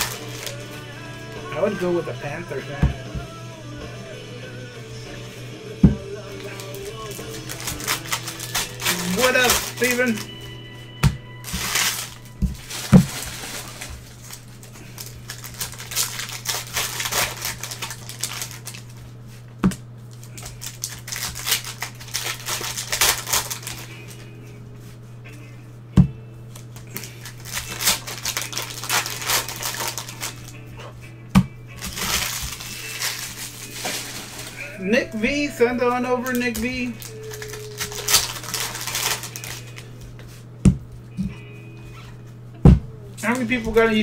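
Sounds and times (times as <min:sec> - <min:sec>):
card wrappers crinkling and tearing: 0:00.0 - 0:02.0, 0:06.2 - 0:10.4, 0:11.4 - 0:19.2, 0:20.0 - 0:24.3, 0:26.5 - 0:30.7, 0:31.7 - 0:40.4
steady low hum: 0:00.0 - 0:44.0.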